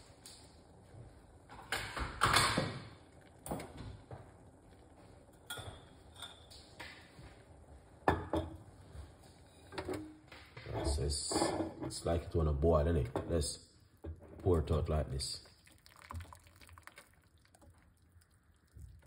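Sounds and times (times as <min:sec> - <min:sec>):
pots and utensils clinking: 0:01.5 - 0:07.4, 0:08.0 - 0:12.2.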